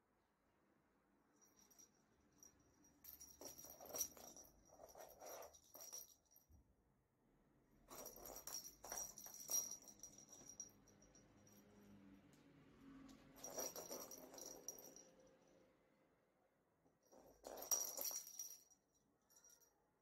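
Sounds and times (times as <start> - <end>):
cat toy bell jingling: 1.4 - 6.4, 7.9 - 12.0, 13.4 - 15.1, 17.1 - 19.7.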